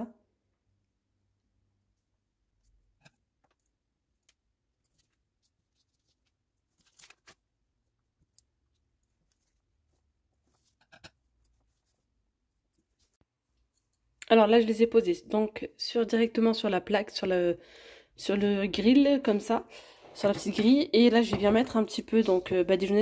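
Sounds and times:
hands folding pastry: 1.8s - 14.2s.

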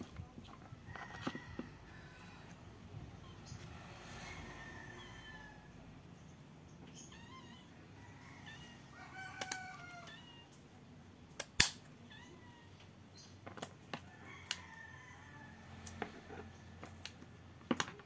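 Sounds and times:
rooster crowing: 0.9s - 2.5s, 3.8s - 5.9s, 7.9s - 10.4s, 14.1s - 16.0s.

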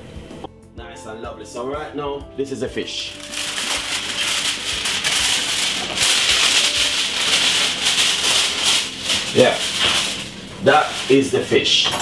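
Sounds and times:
fish sizzling on oven tray: 3.2s - 12.0s.

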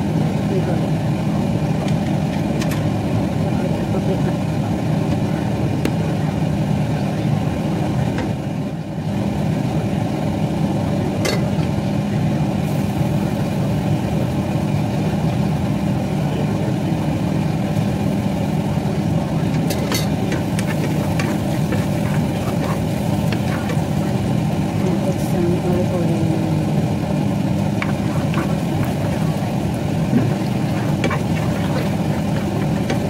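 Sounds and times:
low mechanical hum: 0.0s - 33.0s
wooden spoon stirring in frying pan: 20.1s - 24.3s, 27.8s - 33.0s.

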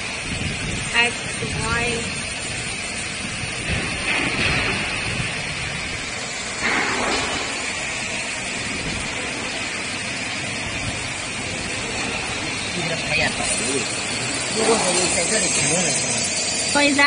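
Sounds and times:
steady machine hiss: 0.0s - 17.0s
machine axis drives moving: 1.4s - 17.0s.

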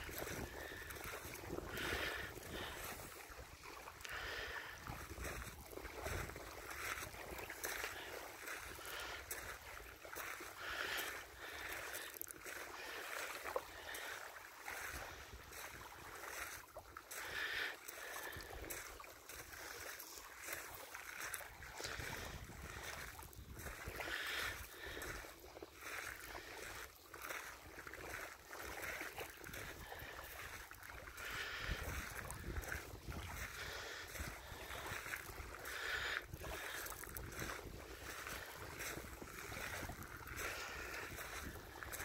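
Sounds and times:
wind buffeting microphone: 0.0s - 7.4s, 21.8s - 25.2s, 31.4s - 35.5s, 36.3s - 42.0s
water lapping at shore: 0.0s - 42.0s.

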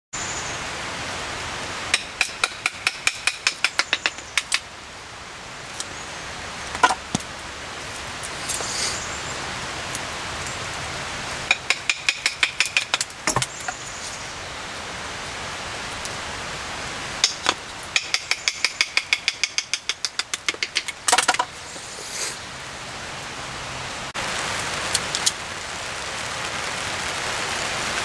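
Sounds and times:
rain hiss: 0.2s - 28.0s
sharp knocks: 1.9s - 4.6s, 6.7s - 7.2s, 11.5s - 13.8s, 17.2s - 21.5s.

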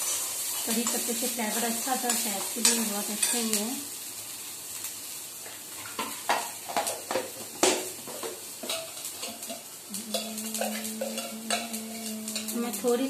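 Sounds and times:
spices sizzling in oil: 0.0s - 13.0s
metal spoon scraping a pan: 8.1s - 13.0s.

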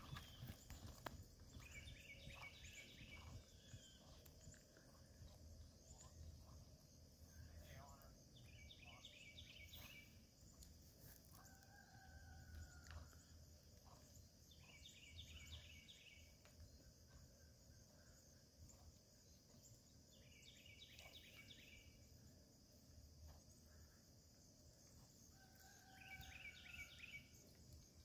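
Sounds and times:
distant rooster crowing: 11.4s - 13.2s, 25.3s - 27.0s.

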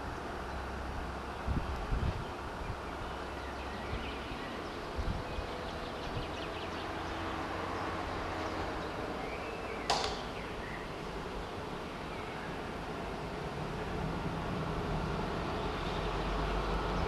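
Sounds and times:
wind buffeting microphone: 1.0s - 9.1s
sharp click: 9.9s - 10.4s.

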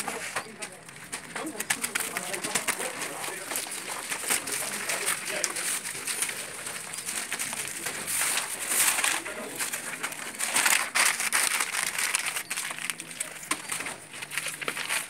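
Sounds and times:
vinyl sheets rustling and crinkling: 0.0s - 15.0s.

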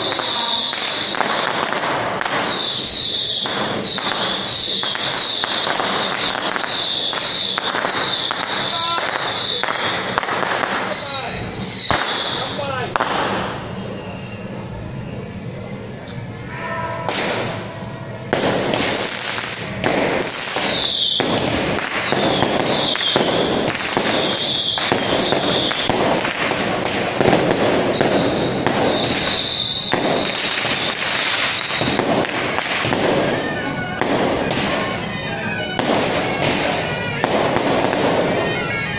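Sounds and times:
firecrackers crackling: 0.0s - 38.9s
high tone: 13.8s - 18.6s.

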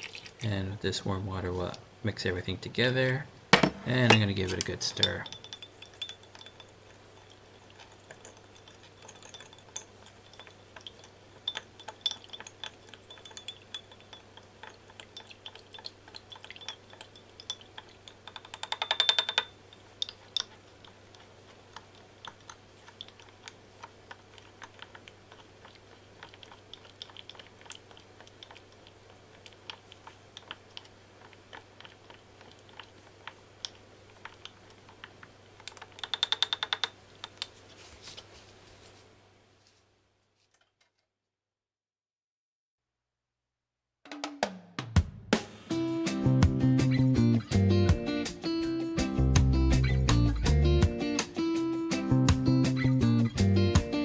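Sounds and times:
spoon stirring in a glass: 3.9s - 37.5s.

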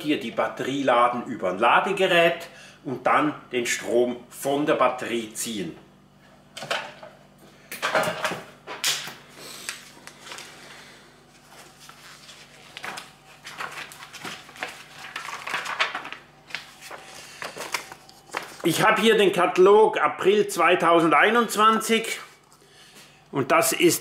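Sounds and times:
faint steady hum: 0.0s - 24.0s
paper pages rustling: 9.7s - 10.7s, 11.3s - 18.9s.

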